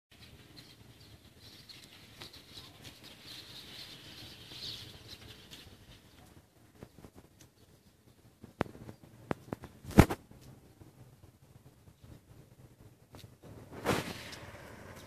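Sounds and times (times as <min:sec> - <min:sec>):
small birds chirping: 0:00.1 - 0:09.9.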